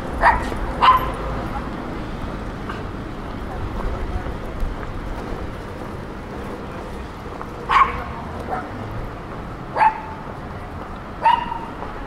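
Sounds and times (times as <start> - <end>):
dog barking: 0.2 - 1.2, 7.7 - 8.8, 9.8 - 10.2, 11.2 - 11.8.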